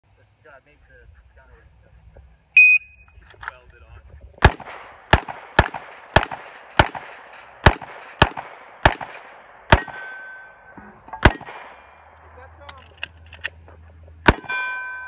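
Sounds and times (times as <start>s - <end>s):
pistol shots: 4.4s - 10.5s, 11.2s - 12.4s, 14.2s - 14.6s
steel targets ringing: 5.6s - 8.2s, 8.9s - 12.0s, 14.3s - 15.0s.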